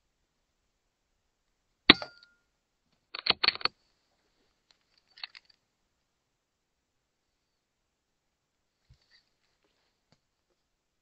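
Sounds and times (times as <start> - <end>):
sharp clicks and rattles: 3.1 - 3.8, 4.7 - 5.6.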